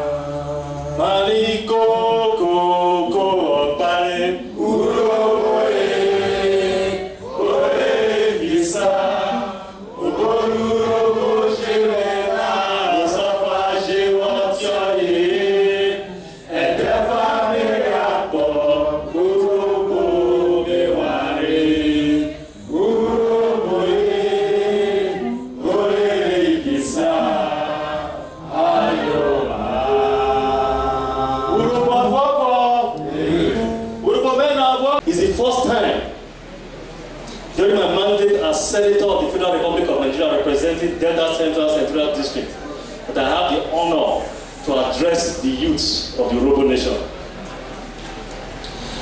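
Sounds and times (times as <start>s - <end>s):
many voices singing in unison: 0.0s - 34.4s.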